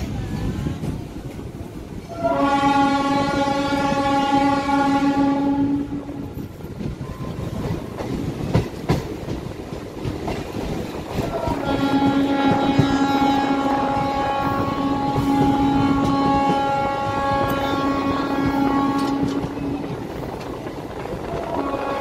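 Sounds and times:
moving train rumble: 0.0s - 22.0s
train horn blast: 2.1s - 6.3s, 11.2s - 20.0s, 21.2s - 22.0s
wheels clacking over rail joints: 6.2s - 14.2s.

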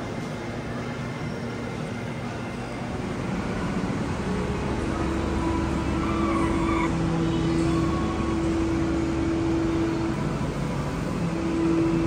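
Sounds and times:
low steady drone: 0.0s - 12.0s
ventilation hum: 0.0s - 12.0s
distant activity: 2.2s - 12.0s.

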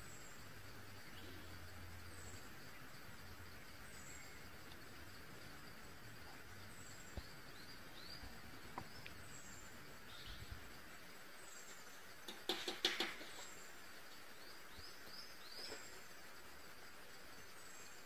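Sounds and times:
faint high bird chirps: 6.8s - 10.7s.

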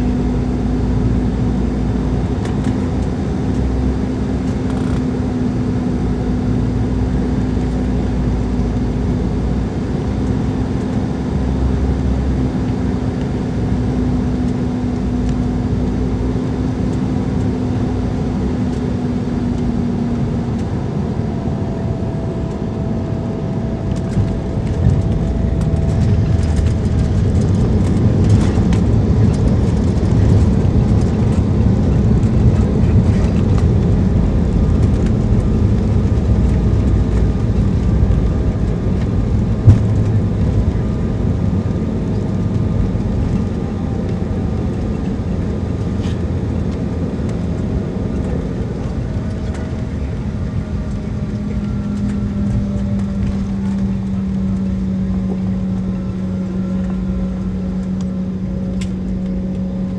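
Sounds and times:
aircraft cabin hum: 0.0s - 59.9s
landing rumble with rattles: 21.8s - 59.9s.

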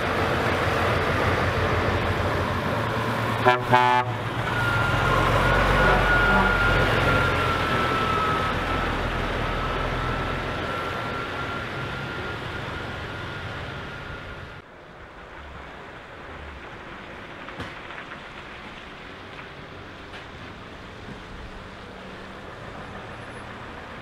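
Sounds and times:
trucks driving past: 0.0s - 24.0s
steady high tone: 2.2s - 14.6s.

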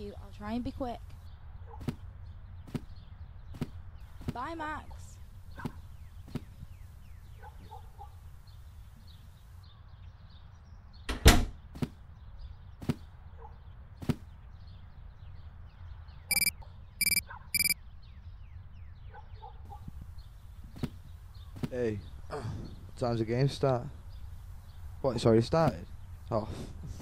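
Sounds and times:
sharp clicks: 16.3s - 17.8s
short electronic beeps: 16.3s - 17.8s.

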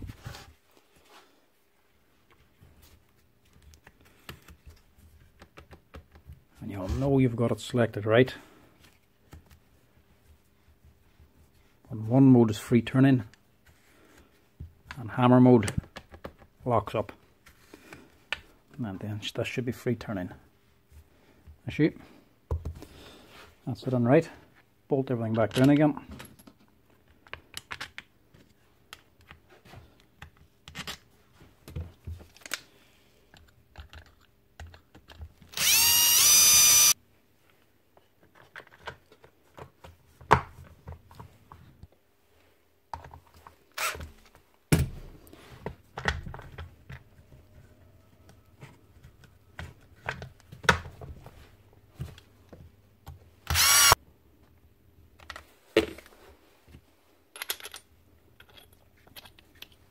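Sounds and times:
power driver whirring: 35.5s - 37.0s, 53.5s - 54.0s.

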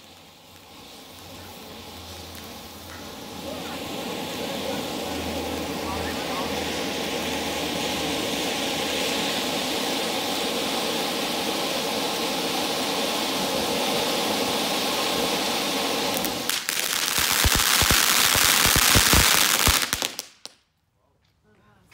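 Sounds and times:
dense crackling pops: 0.0s - 6.5s, 16.1s - 20.7s
fountain firework hissing: 0.0s - 20.5s.

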